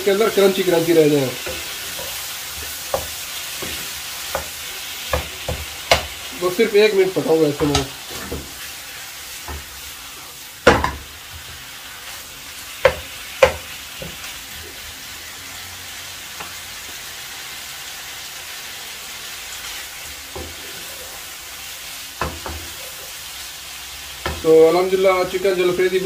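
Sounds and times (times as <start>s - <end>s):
food sizzling in a wok: 0.0s - 26.0s
spatula knocking on pan: 1.4s - 6.2s, 7.6s - 8.5s, 9.4s - 9.7s, 10.6s - 11.1s, 12.8s - 14.3s, 22.2s - 22.8s, 24.2s - 24.5s.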